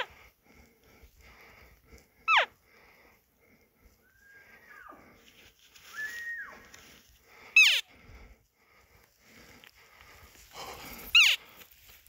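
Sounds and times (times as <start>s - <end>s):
high elk whistle: 4.0s - 5.0s, 5.9s - 6.7s.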